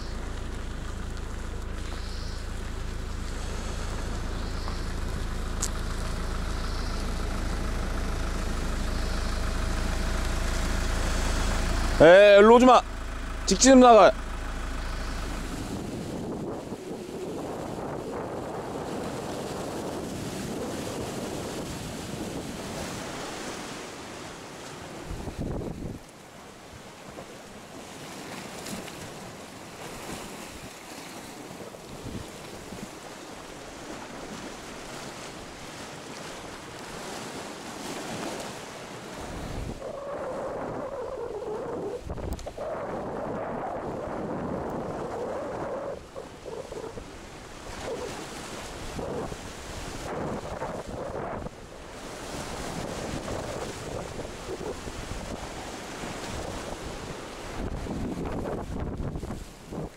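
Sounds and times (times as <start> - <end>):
truck engine idling: 0.0 - 15.8
wind buffeting microphone: 0.0 - 23.8, 24.8 - 26.2, 29.9 - 38.4, 39.0 - 59.9
sea waves washing against rocks: 0.0 - 59.9.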